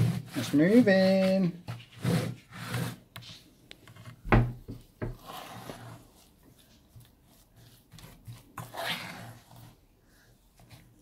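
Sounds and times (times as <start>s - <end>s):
spoon scraping sticky mixture: 0.0s - 4.2s, 4.8s - 11.0s
knock: 4.3s - 5.2s.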